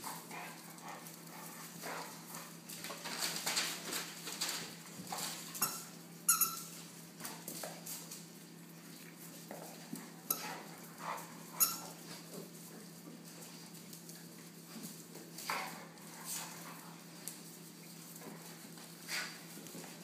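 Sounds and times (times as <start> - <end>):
puppies yipping and squeaking: 5.3 - 6.9, 10.2 - 10.7, 11.5 - 12.2.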